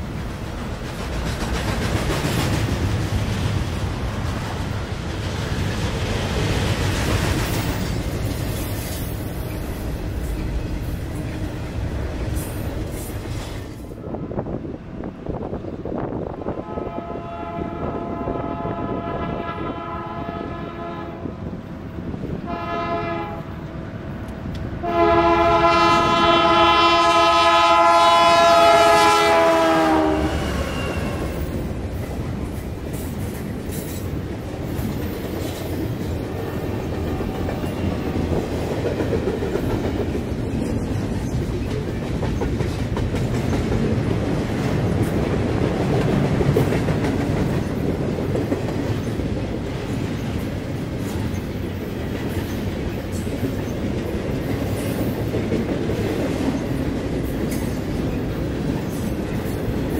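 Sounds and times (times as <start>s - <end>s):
train wheels rumbling and clacking: 0.0s - 59.9s
locomotive horn blasts: 16.6s - 21.4s, 22.4s - 23.6s, 24.8s - 31.4s.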